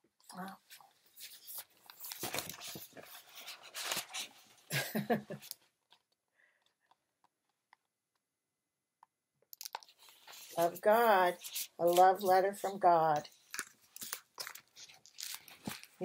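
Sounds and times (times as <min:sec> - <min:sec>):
paper pages turning: 0:00.4 - 0:04.7, 0:09.6 - 0:16.0.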